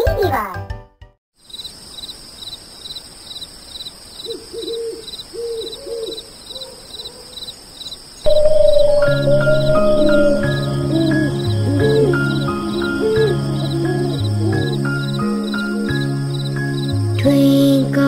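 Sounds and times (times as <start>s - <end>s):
crickets chirping: 1.4s - 17.8s
owl hooting: 4.2s - 7.5s, 8.3s - 16.9s
sustained musical note: 8.3s - 16.9s.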